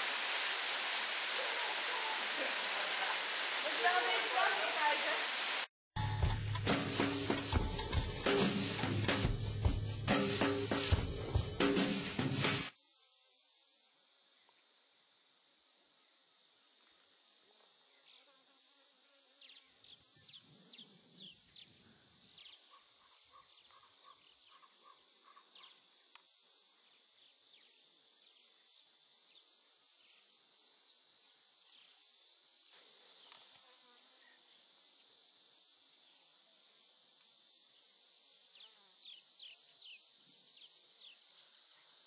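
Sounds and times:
insects shrilling: 0:00.0 - 0:05.6, 0:21.2 - 0:42.0
short insect chirps: 0:12.8 - 0:42.0.

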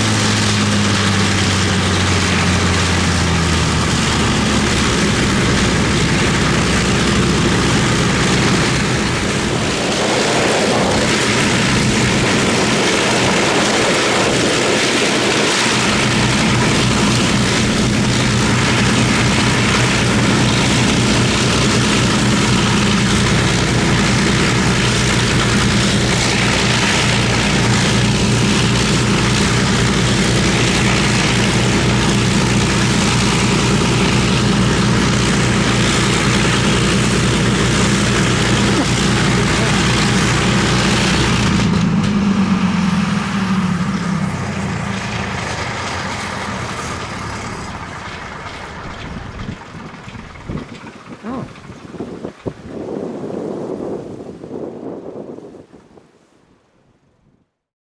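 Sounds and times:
aircraft engines running: 0:00.0 - 0:55.9.

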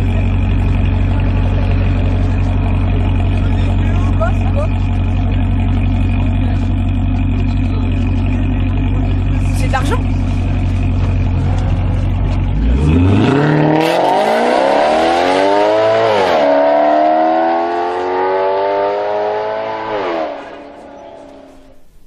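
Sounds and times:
sports car engine accelerating: 0:00.0 - 0:21.8.

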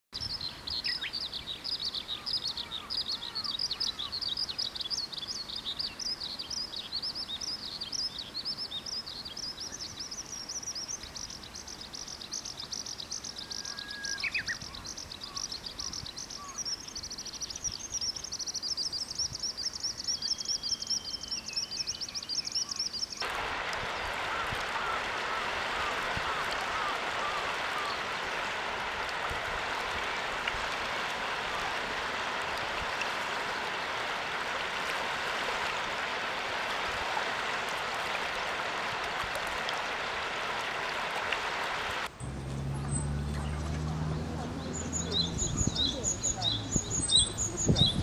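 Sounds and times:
babbling stream: 0:00.2 - 0:48.0
skylark singing: 0:42.9 - 0:48.0.

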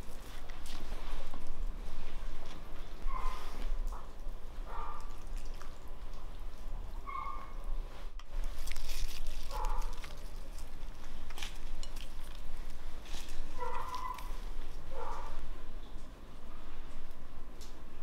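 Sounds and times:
salad leaves rustling: 0:00.0 - 0:06.9, 0:07.7 - 0:16.0
animal calling: 0:13.6 - 0:14.4.

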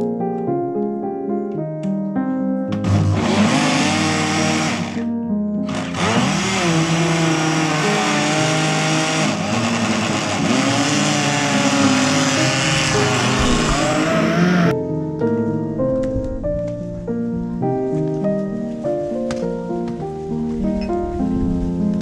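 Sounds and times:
blender motor running: 0:02.8 - 0:05.0, 0:05.7 - 0:14.7.

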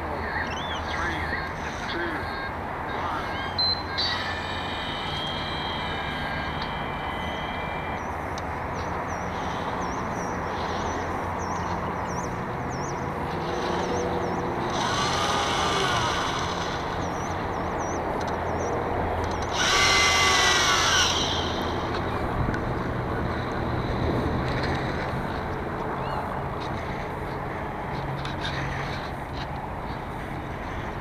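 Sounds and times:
servo whirring: 0:13.2 - 0:17.8, 0:19.2 - 0:22.2.

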